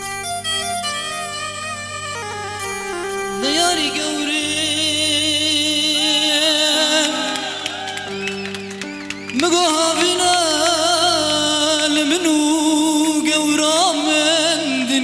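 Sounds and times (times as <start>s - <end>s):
instrumental backing music: 0.0s - 15.0s
person singing long wavering notes: 3.4s - 8.1s.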